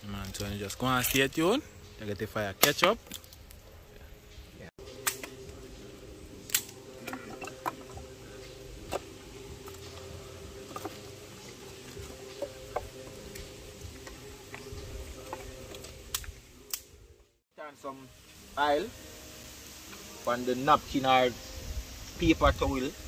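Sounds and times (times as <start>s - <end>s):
sticks clicking and snapping: 5.0s - 5.4s, 6.4s - 7.2s, 15.8s - 16.9s
wind rumble on microphone: 21.4s - 23.0s.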